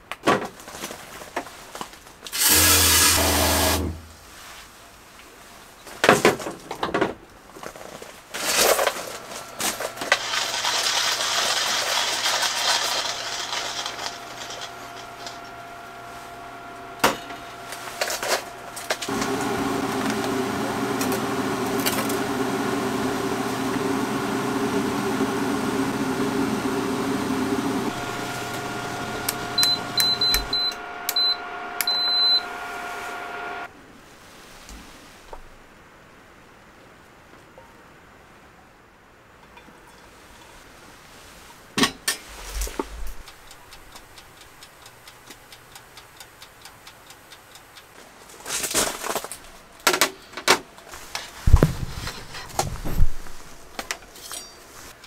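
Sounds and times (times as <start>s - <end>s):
electric hob humming: 2.4s - 4.2s, 13.1s - 33.7s
short high beeps: 29.6s - 32.5s.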